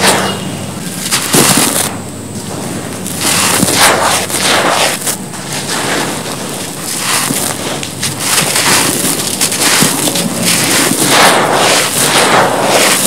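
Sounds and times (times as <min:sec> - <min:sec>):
grains crunching and spilling: 0:00.0 - 0:13.0
hands scooping gritty cement powder: 0:03.1 - 0:13.0.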